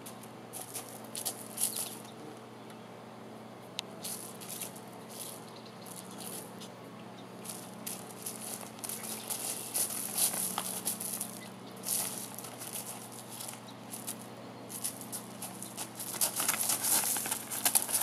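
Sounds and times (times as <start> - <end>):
soft rustling and scratching: 7.4 - 18.0.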